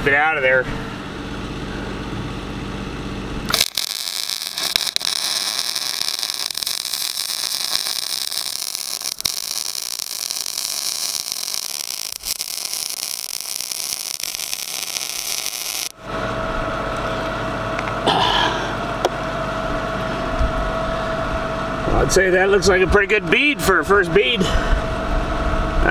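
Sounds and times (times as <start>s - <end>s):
steady low hum: 0.0s - 25.9s
welding arc sizzling: 3.5s - 16.0s.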